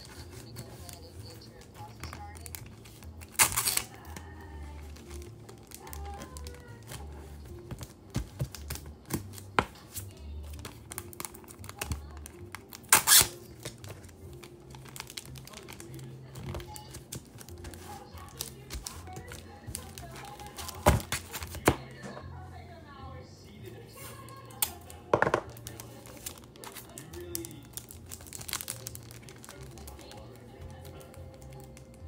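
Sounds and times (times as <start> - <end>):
plastic sleeves crinkling: 0.0 - 22.2, 23.8 - 32.0
quiet background music with bass: 0.0 - 32.0.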